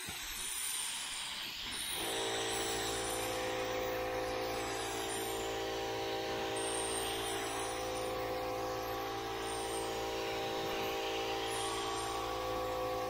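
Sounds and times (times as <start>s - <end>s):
air compressor motor hum: 2.0s - 13.0s.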